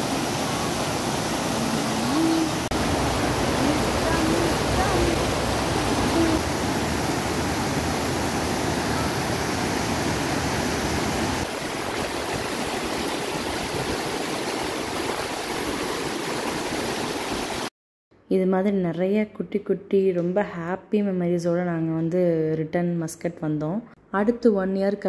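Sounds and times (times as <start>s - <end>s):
flowing water rushing: 0.0s - 17.7s.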